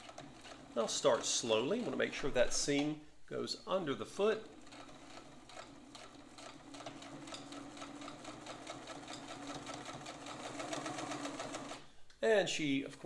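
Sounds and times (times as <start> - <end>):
sewing machine running: 0.0 - 2.3, 4.2 - 11.8.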